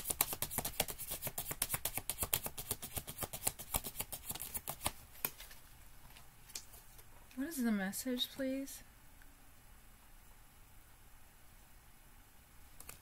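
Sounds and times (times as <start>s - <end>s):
cards being shuffled: 0.0s - 7.1s.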